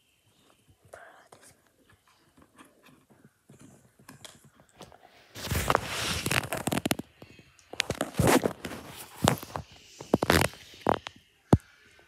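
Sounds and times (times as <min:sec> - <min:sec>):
rustling handling noise: 0:01.8 - 0:11.1.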